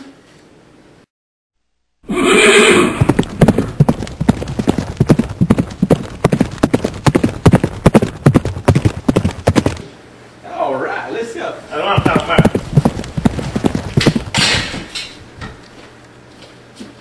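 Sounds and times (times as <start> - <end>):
horse whinny: 2.0 - 3.2
galloping hoofbeats: 2.1 - 9.8, 12.0 - 14.9.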